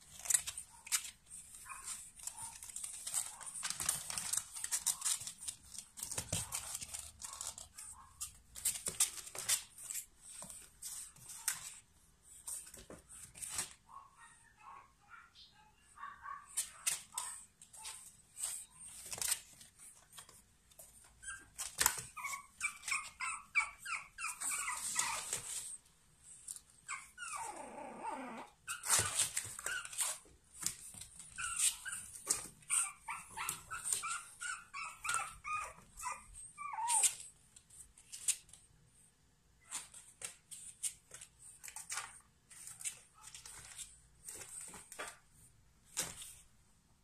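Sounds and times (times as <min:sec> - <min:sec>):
puppies whimpering and yipping: 0:21.0 - 0:25.8, 0:26.8 - 0:37.3.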